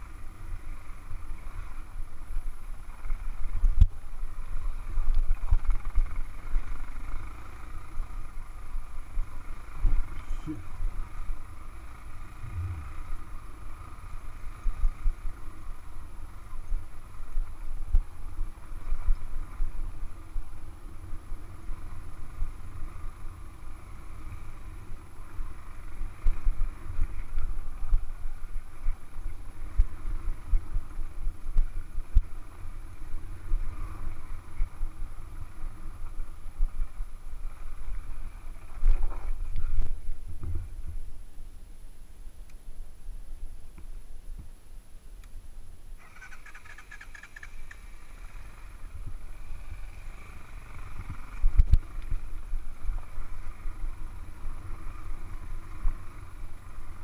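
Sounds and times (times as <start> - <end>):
motorcycle engine rumble: 0.0 - 57.0
wind on camera: 12.2 - 13.6, 33.0 - 41.6, 48.8 - 56.1.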